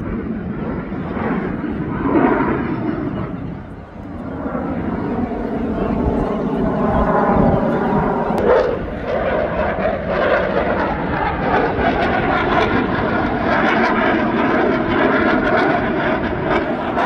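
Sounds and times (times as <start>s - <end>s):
aircraft engine drone: 0.0s - 17.0s.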